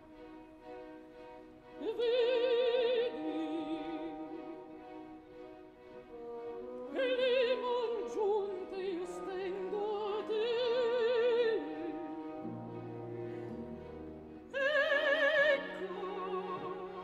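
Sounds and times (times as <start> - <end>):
orchestra playing: 0.0 - 17.0
soprano singing with vibrato: 1.8 - 5.0, 6.8 - 12.7, 14.4 - 17.0.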